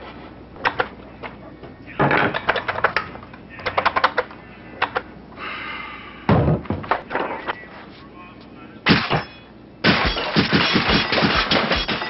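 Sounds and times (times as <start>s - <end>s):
nail gun firing: 9.8s - 12.0s.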